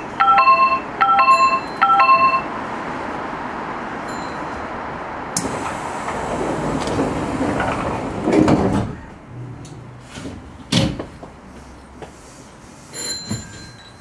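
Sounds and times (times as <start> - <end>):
train cab clatter and rumble: 4.0 - 12.2, 13.0 - 14.0.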